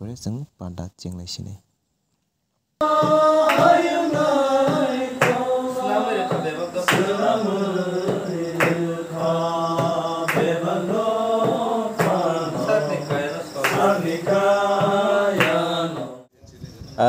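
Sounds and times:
person chanting long notes: 0:02.8 - 0:16.2.

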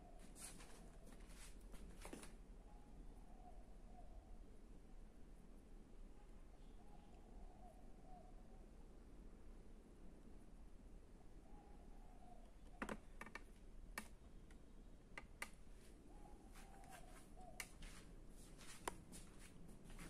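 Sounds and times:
faint irregular clicks and taps: 0:12.4 - 0:15.6, 0:17.6 - 0:17.9, 0:18.8 - 0:19.0.

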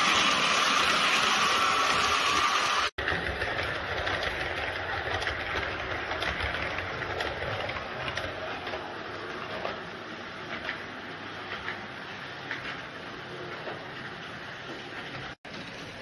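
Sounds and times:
model train wheels clattering: 0:03.0 - 0:08.8.

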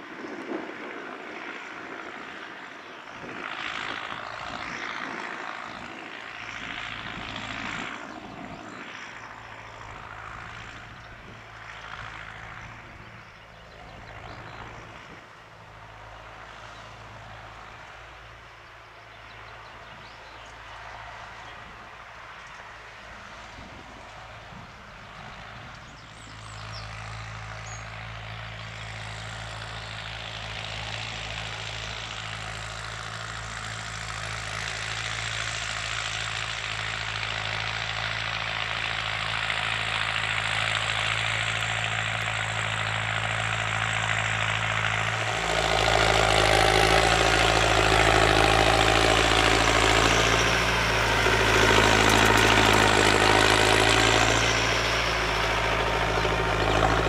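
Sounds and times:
tractor engine running: 0:00.0 - 0:57.0.

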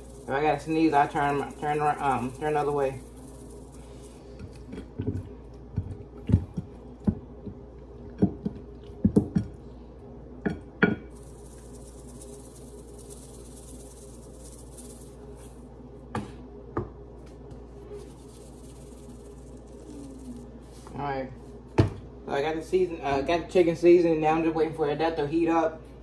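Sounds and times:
seasoning shaken out hiss: 0:00.0 - 0:04.9, 0:11.1 - 0:15.8, 0:17.5 - 0:21.6.

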